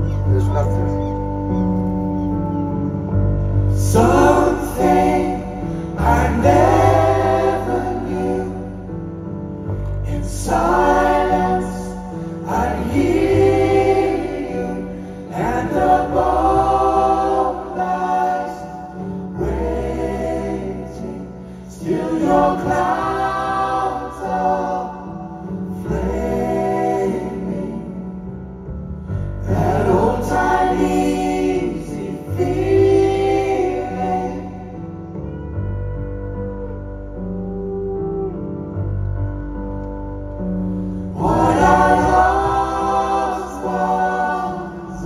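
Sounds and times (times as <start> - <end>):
low keyboard and bass chords: 0.0 - 45.0
group singing in harmony: 3.6 - 28.5, 29.2 - 35.3, 40.7 - 45.0.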